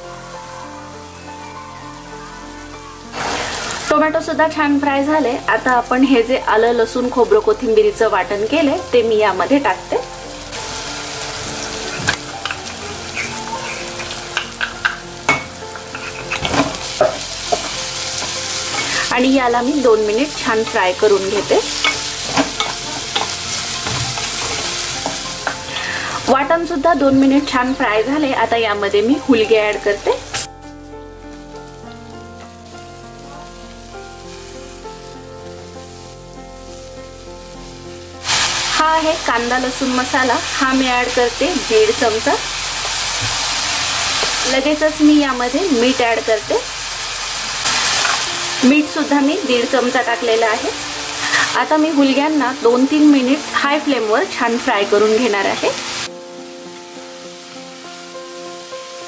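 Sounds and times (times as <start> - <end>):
masala sizzling in hot oil: 0.0 - 59.0
soft instrumental music: 0.0 - 59.0.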